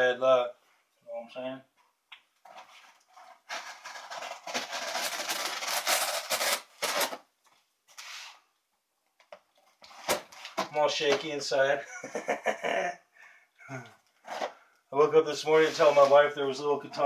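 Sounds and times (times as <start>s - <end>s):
knife cutting tape and cardboard: 3.5s - 7.2s.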